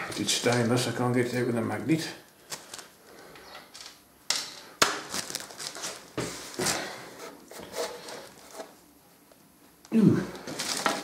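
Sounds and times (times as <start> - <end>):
scraping and rustling: 5.1 - 8.8, 10.4 - 11.0.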